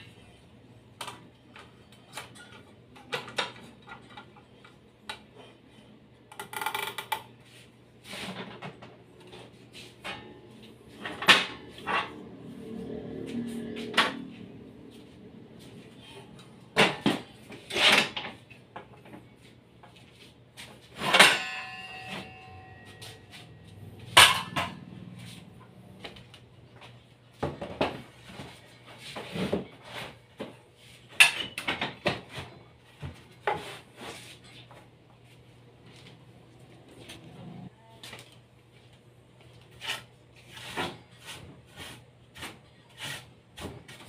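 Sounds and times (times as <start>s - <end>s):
metallic clang ringing: 21.0s - 25.1s
knocks and clatters on metal table: 21.0s - 25.2s.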